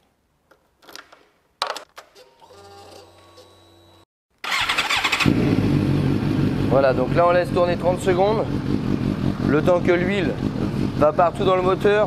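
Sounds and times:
motorcycle engine starting: 4.4s - 12.0s.

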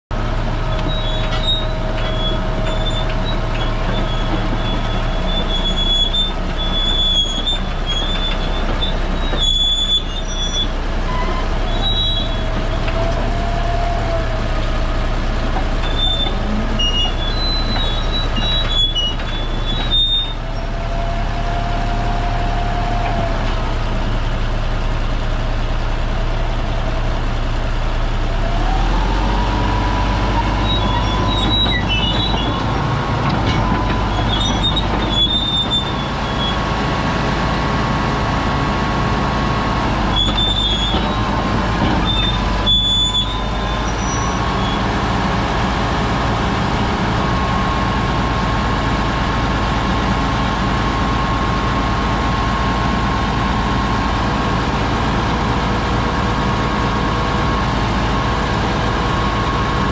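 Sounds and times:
diesel engine running: 0.1s - 59.9s
tracks squealing: 0.7s - 14.2s, 15.7s - 20.7s, 30.2s - 37.2s, 39.7s - 48.4s.

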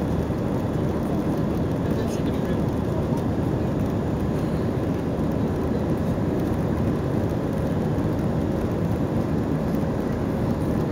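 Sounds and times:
jet engines roaring: 0.0s - 10.9s
rushing air in cabin: 0.0s - 10.9s.

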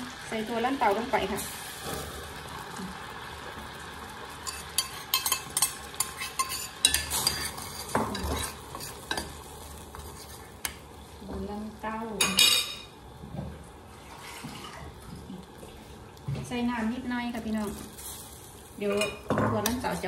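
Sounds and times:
curry simmering: 0.0s - 12.2s
metal spoon clinking against pot: 4.5s - 7.6s.

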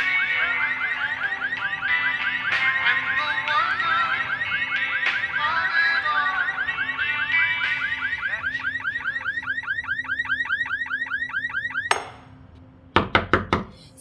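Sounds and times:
electronic alarm warbling chirps: 0.0s - 12.2s
knocks on a door: 13.0s - 13.7s.

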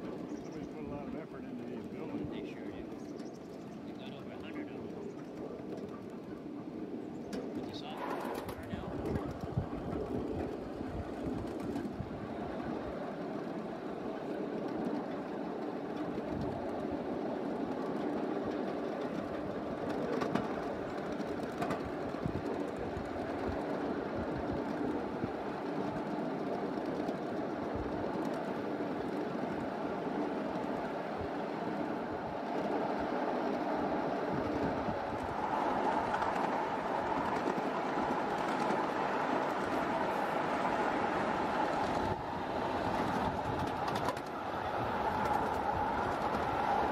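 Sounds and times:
miniature train rumbling on track: 0.0s - 46.9s
wheel clicks: 42.8s - 46.8s.

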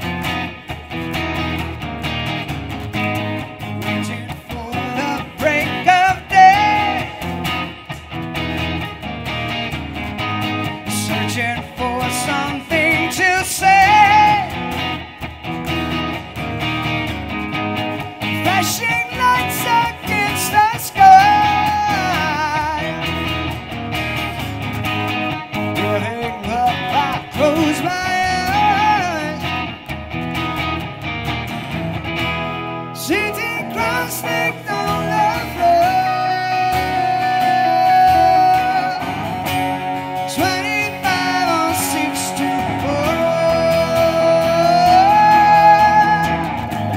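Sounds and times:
strummed acoustic guitar: 0.0s - 46.9s
wavering electric guitar lead: 0.0s - 46.9s
man singing: 3.7s - 8.1s, 10.5s - 15.3s, 18.0s - 23.5s, 25.6s - 29.9s, 32.9s - 46.9s.

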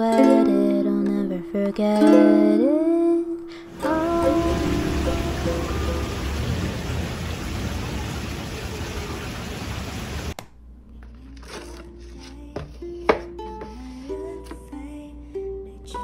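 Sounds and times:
water rushing into fish tank: 3.7s - 10.4s.

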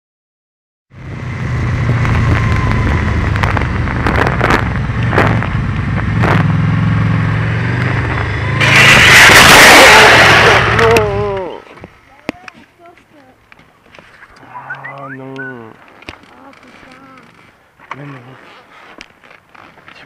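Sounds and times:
motorcycle engine running: 0.9s - 8.8s
motorcycle scraping on road: 1.0s - 11.4s, 16.0s - 20.0s.

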